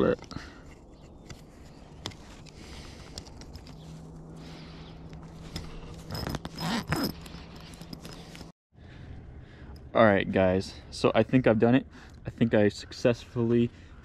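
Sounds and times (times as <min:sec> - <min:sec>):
pliers clicking and scraping: 0:00.2 - 0:03.9, 0:05.1 - 0:08.5
zipper rasping: 0:05.2 - 0:08.5.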